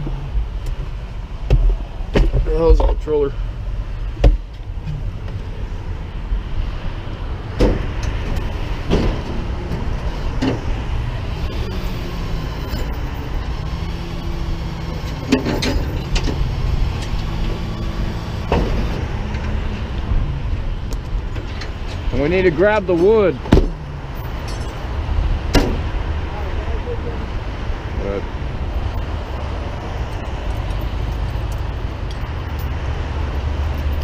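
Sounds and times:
truck engine running: 7.1 - 27.2
hydraulic hum: 7.5 - 20.2
metal knocks and clanks: 7.6 - 10.7, 15.1 - 17.6.

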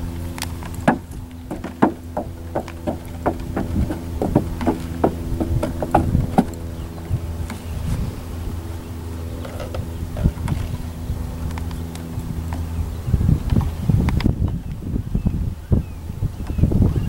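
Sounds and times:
steady low hum: 0.0 - 17.0
hooves knocking on wooden planks: 0.4 - 8.0.

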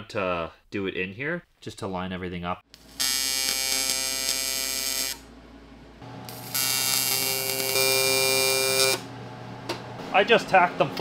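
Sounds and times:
welding arc buzzing: 2.7 - 5.4, 6.0 - 10.0.

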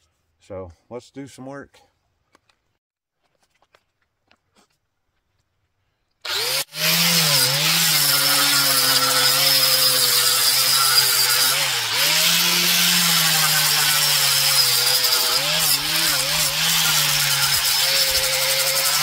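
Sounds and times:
angle grinder sanding wood: 6.3 - 19.0.

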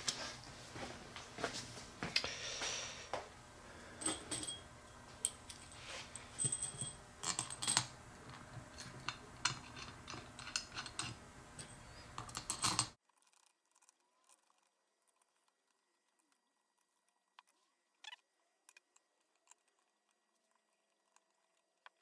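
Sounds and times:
small metal parts clinking: 5.2 - 8.0.

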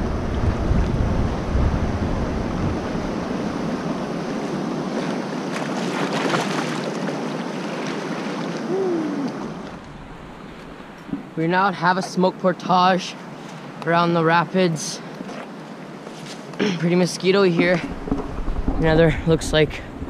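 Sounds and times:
river rapids roaring: 2.1 - 11.8.

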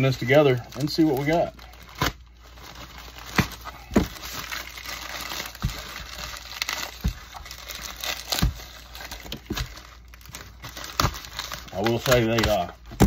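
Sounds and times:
bubble mailer crinkling: 0.0 - 13.0
package knocking: 3.2 - 4.4, 5.2 - 9.9.

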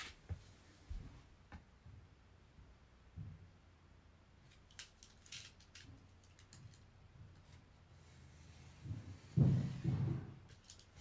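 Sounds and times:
dull thump: 8.8 - 10.4.

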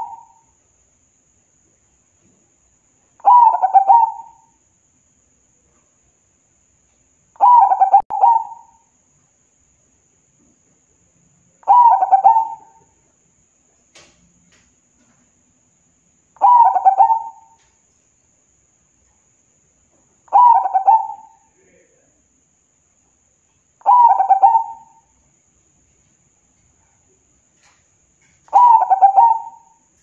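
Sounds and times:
dove cooing: 0.0 - 0.4, 3.2 - 4.5, 7.4 - 8.8, 11.6 - 12.9, 16.4 - 17.6, 20.3 - 21.5, 23.8 - 25.1, 28.4 - 29.9.

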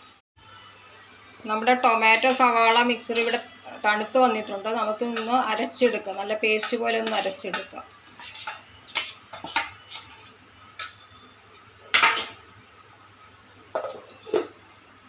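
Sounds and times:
steel spoon scraping a pan: 1.9 - 4.1, 4.8 - 12.3.

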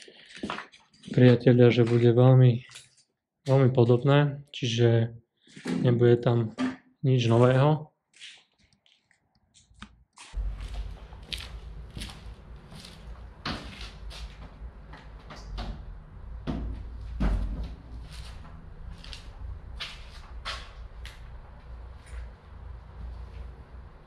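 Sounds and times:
sneaker footsteps on gritty concrete: 8.2 - 15.2, 18.0 - 21.2
steady low rumble: 10.4 - 24.0.

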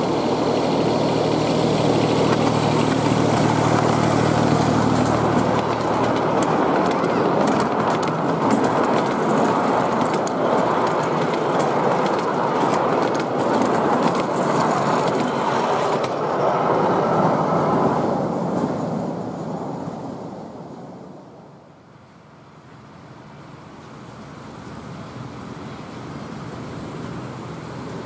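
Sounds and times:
wheels clicking over rail joints: 0.0 - 17.4
wheels rumbling on rails: 0.0 - 28.0.

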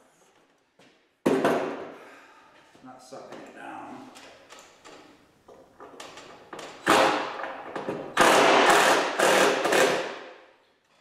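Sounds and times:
power driver driving screws: 8.1 - 10.2.

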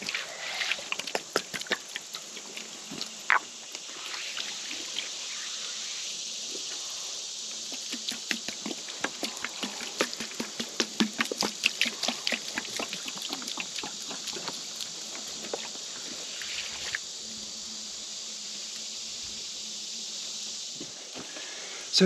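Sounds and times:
water spattering on wood: 7.8 - 15.7.

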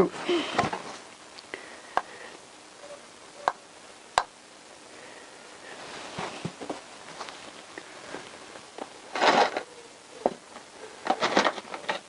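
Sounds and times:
handling noise: 5.8 - 12.0.

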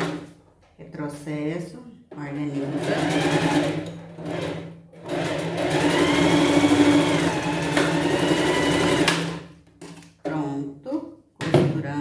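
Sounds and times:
sewing machine stitching: 2.5 - 9.4.

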